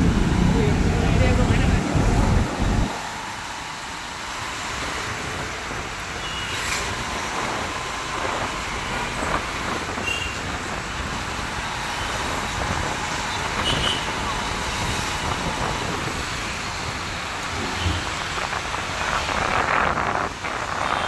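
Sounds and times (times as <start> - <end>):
road traffic noise: 0.0 - 21.0.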